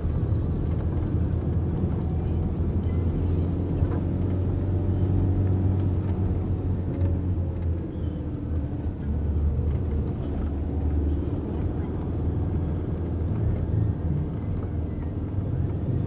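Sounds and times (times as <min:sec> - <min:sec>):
tyres on road: 0:00.0 - 0:16.0
vehicle engine rumble: 0:00.0 - 0:16.0.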